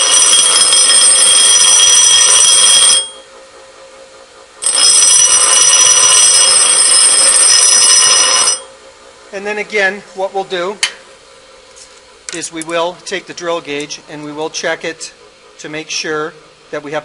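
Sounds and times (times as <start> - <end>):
drill bit grinding on bench grinder: 0.0 - 3.1, 4.6 - 8.7.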